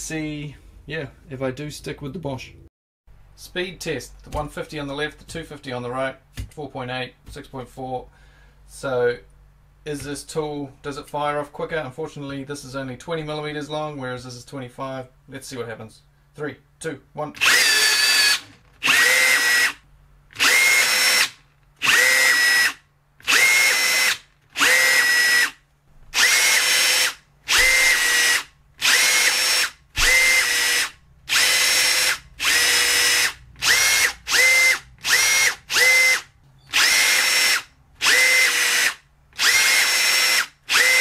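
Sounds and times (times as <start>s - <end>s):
rivet tool motor whirs: 17.4s - 41.0s.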